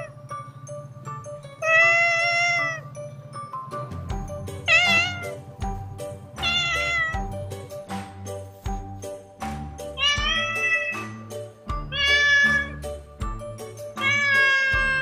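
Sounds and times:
background music with steady beat: 0.0 - 15.0
kitten meowing: 1.6 - 2.8, 4.7 - 5.4, 6.4 - 7.3, 10.0 - 11.2, 11.9 - 12.8, 14.0 - 15.0.

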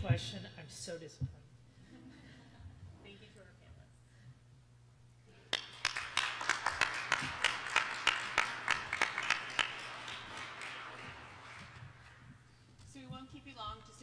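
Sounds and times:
person clapping loudly: 5.5 - 12.4
audience applauding: 5.5 - 12.5.

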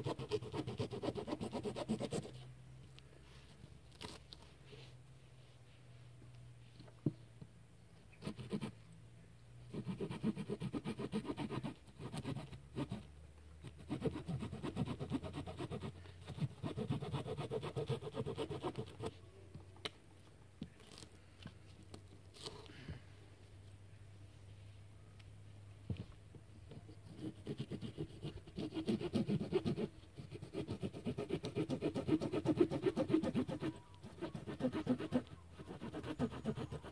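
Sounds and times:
blade scraping a wooden stick: 26.8 - 36.9.

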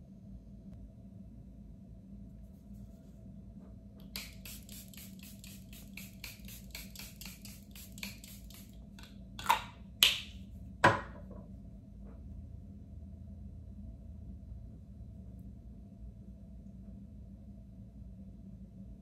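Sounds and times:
spray bottle spritzing: 4.0 - 8.8.

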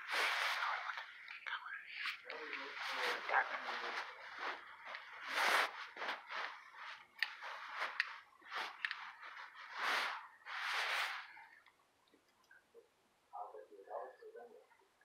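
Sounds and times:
person whispering: 0.0 - 4.6.

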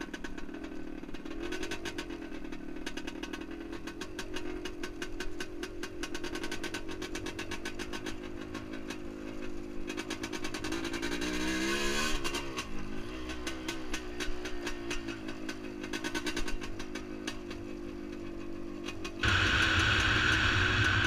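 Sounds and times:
motorcycle two-stroke engine running: 13.6 - 21.0.

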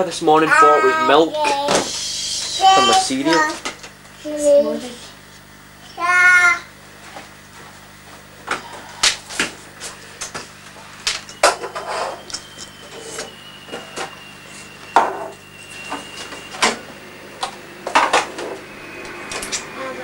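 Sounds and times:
faint thin whistling tone: 11.3 - 20.0.

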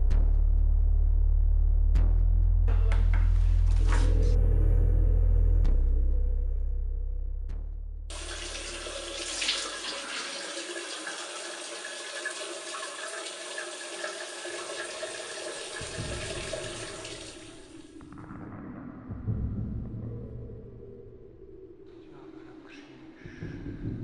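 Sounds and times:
shower water running: 8.1 - 18.1.

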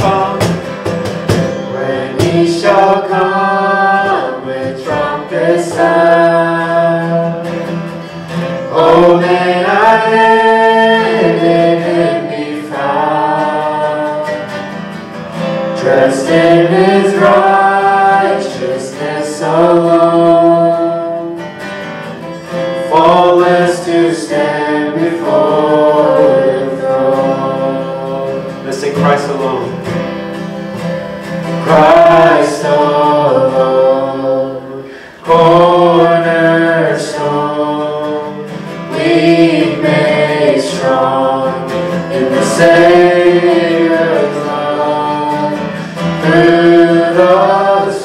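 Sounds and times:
cajon: 0.0 - 12.0
strummed acoustic guitar: 0.0 - 48.0
voices singing worship song: 0.0 - 48.0.

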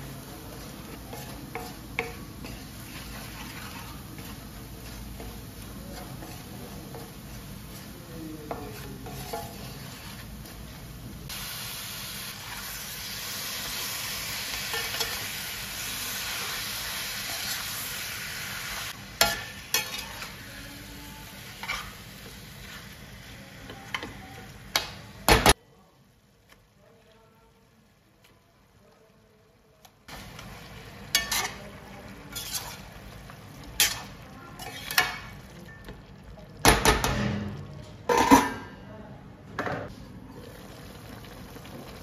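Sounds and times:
food sizzling in a pan: 0.0 - 38.4, 39.9 - 42.0
metal spoon scraping a pan: 0.4 - 10.8, 19.2 - 20.6, 21.5 - 23.0, 31.0 - 33.0, 33.6 - 35.4.

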